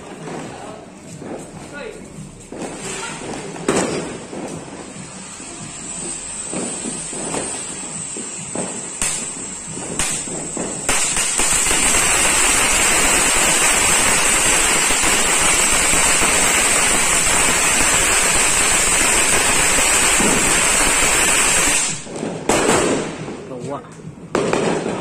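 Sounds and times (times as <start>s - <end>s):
firework fountain hiss and crackle: 0.0s - 25.0s
firework pops: 2.5s - 5.1s, 6.0s - 23.3s.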